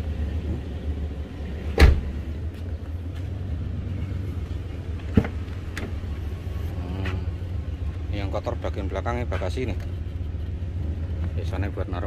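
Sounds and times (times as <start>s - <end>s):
car engine idling: 0.0s - 12.0s
car door slamming: 1.7s - 2.2s.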